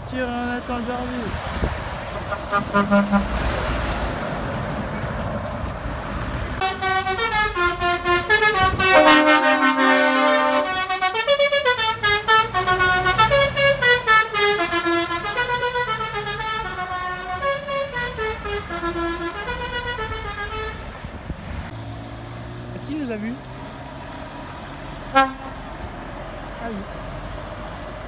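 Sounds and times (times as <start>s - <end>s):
truck engine passing: 0.0s - 28.0s
musical air horns playing a tune: 2.3s - 3.4s, 6.6s - 20.9s, 25.1s - 25.6s.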